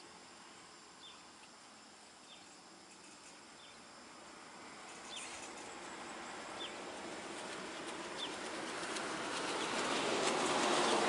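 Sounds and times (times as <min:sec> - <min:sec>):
bird chirping: 0:02.2 - 0:03.8, 0:05.0 - 0:05.5
vehicle approaching: 0:06.0 - 0:11.0.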